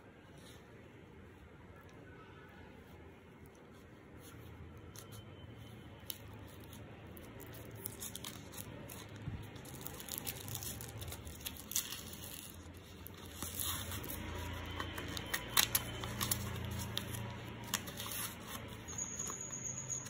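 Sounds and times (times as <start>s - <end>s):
paper rustling: 6.0s - 19.7s
knife slitting paper envelope: 9.6s - 19.3s.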